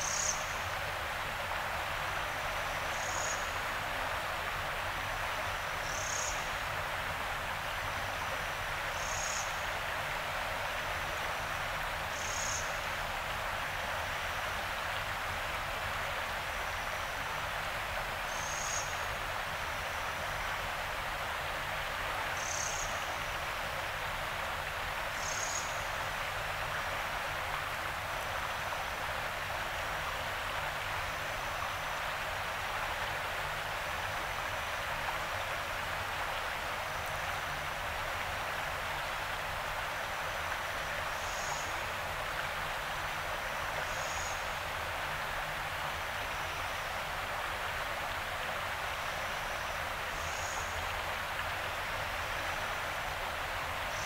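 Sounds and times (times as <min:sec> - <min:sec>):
river water rushing: 0:00.0 - 0:54.0.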